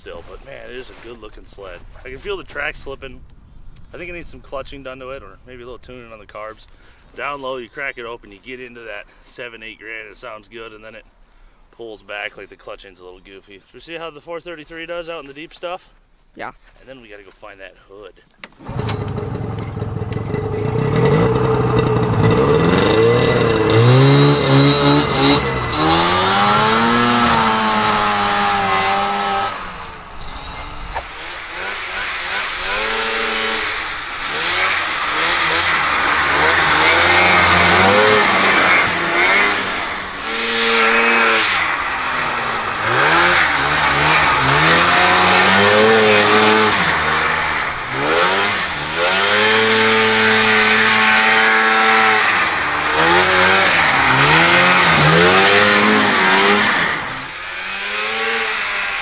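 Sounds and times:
snowmobile engine revving: 0:18.6 - 0:59.0.

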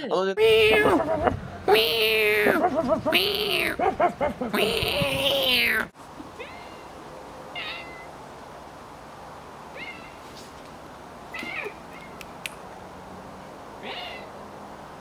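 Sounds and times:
cat meowing: 0:00.4 - 0:01.0, 0:01.7 - 0:03.8, 0:04.6 - 0:06.9, 0:07.6 - 0:08.1, 0:09.8 - 0:10.2, 0:11.3 - 0:12.2, 0:13.8 - 0:14.3.

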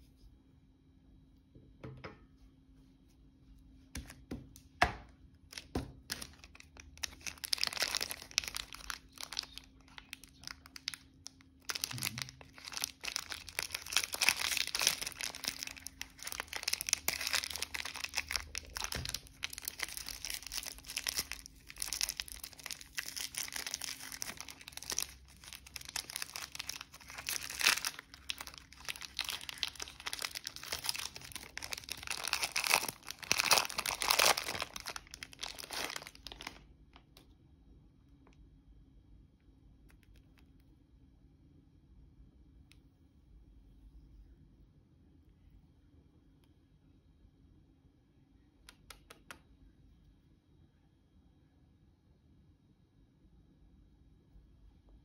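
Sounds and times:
plastic wrapper crinkling and tearing: 0:05.5 - 0:37.2.

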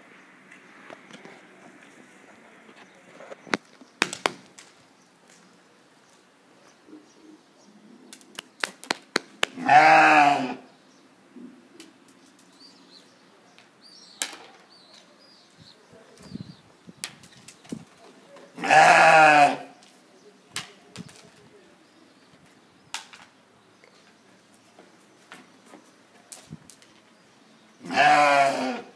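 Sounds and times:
sheep bleating: 0:09.6 - 0:10.6, 0:18.6 - 0:19.7, 0:27.8 - 0:28.9.

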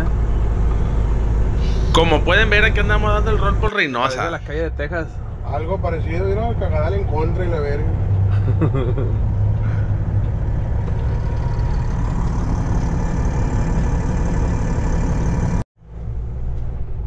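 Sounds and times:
road noise: 0:00.0 - 0:17.0
truck diesel engine drone: 0:00.0 - 0:17.0.

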